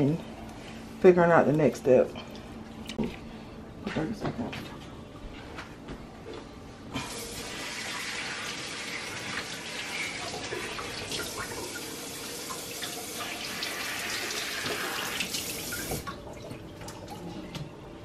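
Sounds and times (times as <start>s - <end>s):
tap running water: 7.0s - 17.7s.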